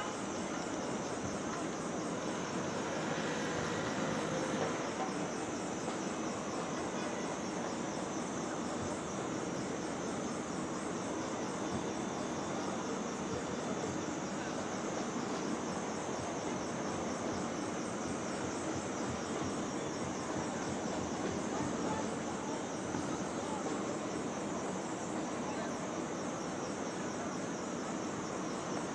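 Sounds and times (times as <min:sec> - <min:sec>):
traffic: 0:01.6 - 0:05.4.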